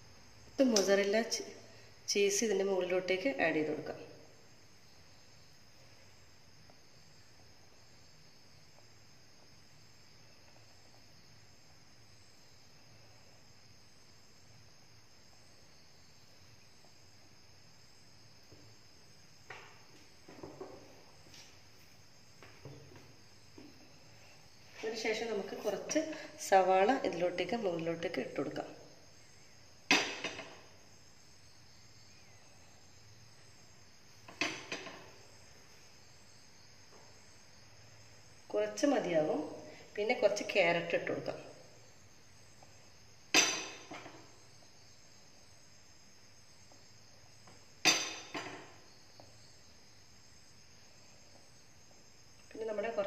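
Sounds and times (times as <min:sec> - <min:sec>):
faint high-pitched whine: 0:00.0 - 0:53.0
kitchenware clinking: 0:43.4 - 0:44.2, 0:47.9 - 0:48.7.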